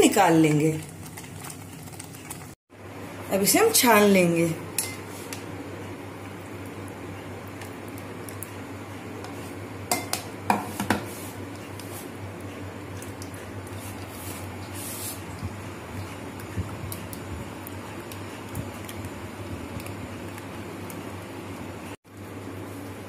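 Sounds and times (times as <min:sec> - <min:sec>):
bowl and strainer knocking: 0:09.9 - 0:11.1
spatula scraping in a sieve: 0:10.6 - 0:12.2, 0:13.7 - 0:15.3.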